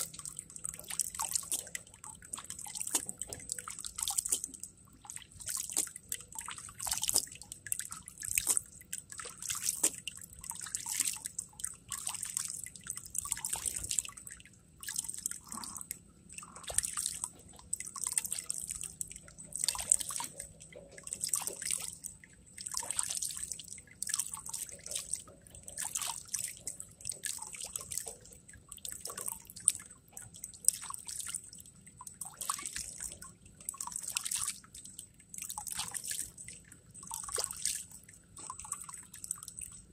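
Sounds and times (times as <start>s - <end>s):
water splashing over a plastic pan: 0.0s - 15.7s
water dripping into a bucket: 0.0s - 39.9s.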